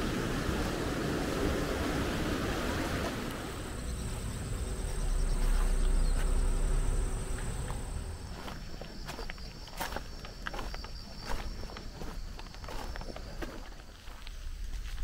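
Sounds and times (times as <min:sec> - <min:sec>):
wind rumble on microphone: 0:00.0 - 0:09.2
high-pitched insect drone: 0:03.6 - 0:11.5.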